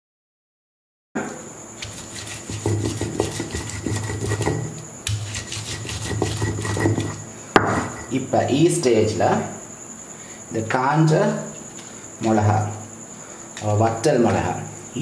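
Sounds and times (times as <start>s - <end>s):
stone roller grinding onions: 1.8s - 8.2s.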